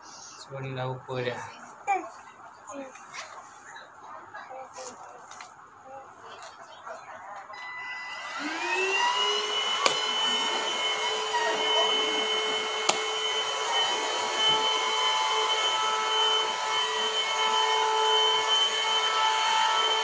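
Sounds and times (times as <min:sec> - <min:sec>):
vacuum cleaner motor whine: 0:07.5 - 0:20.0.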